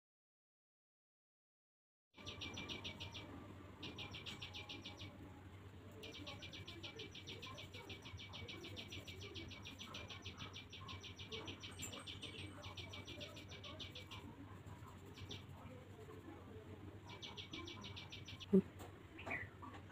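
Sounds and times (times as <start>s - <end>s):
rapid high-pitched chirping: 2.2s - 5.2s, 5.9s - 16.3s, 16.9s - 18.6s.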